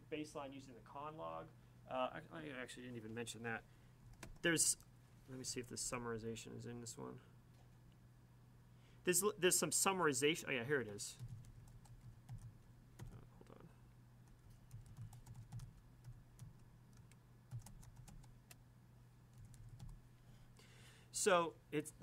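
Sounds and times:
keyboard typing: 4.1 - 4.5, 10.9 - 13.5, 14.2 - 18.6, 19.3 - 20.0.

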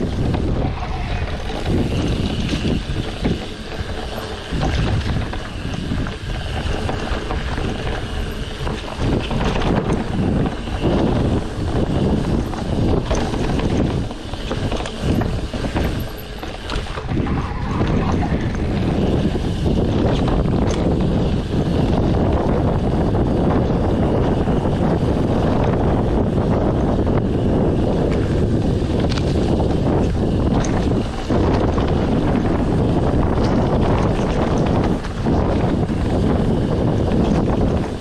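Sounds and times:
bike knocks and rattles: 0.0 - 38.0
wind buffeting microphone: 0.0 - 38.0.

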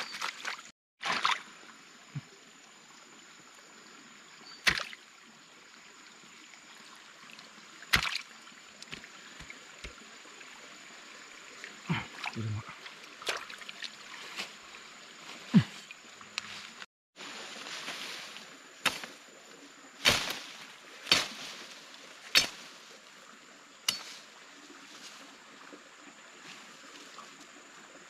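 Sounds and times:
water trickling: 4.3 - 16.7.

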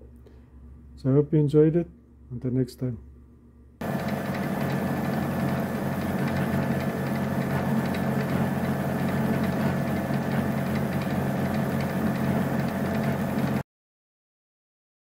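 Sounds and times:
milling machine cutting metal: 3.8 - 13.6.

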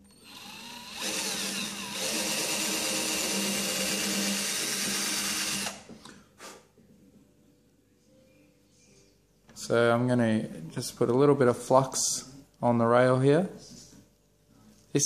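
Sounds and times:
small electric drill running: 0.1 - 5.8.

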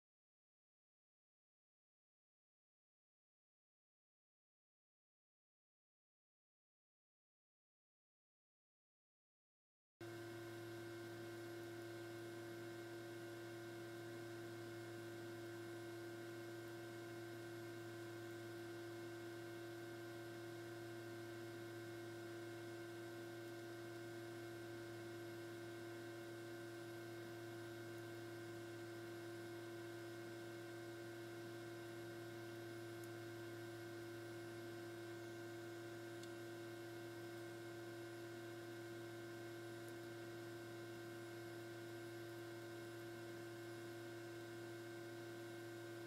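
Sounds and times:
faint electrical hum: 10.0 - 46.0.

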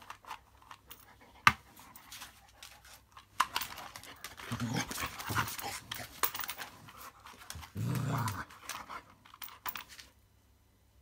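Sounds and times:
dog panting and scuffling: 1.0 - 9.1.

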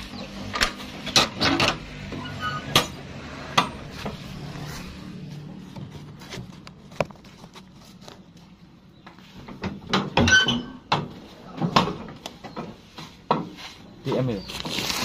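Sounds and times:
short squeak: 2.2 - 2.8, 10.2 - 10.9
objects knocking and clattering: 9.5 - 13.6.

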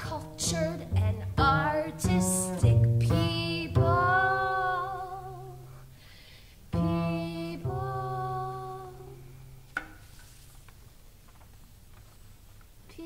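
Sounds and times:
woman singing long notes: 0.0 - 5.7, 6.7 - 9.4
low double bass tones: 0.5 - 5.6.

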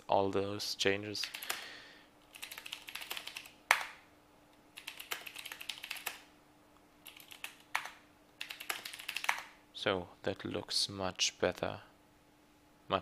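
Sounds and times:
faint steady hum: 0.0 - 13.0
typing on computer keyboard: 1.2 - 1.6, 2.3 - 4.0, 4.8 - 6.3, 7.0 - 9.5.

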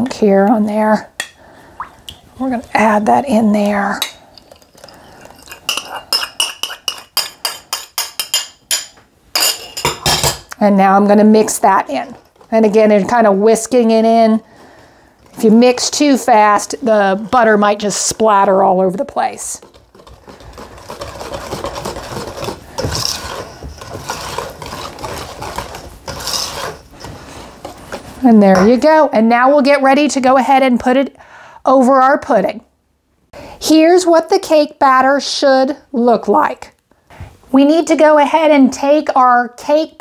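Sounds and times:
wire whisk scraping metal bowl: 4.0 - 8.4, 19.1 - 27.1.

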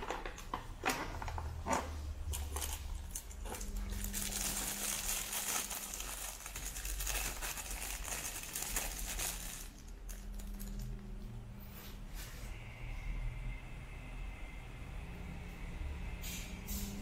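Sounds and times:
plastic wrapping crinkling: 0.0 - 11.0.

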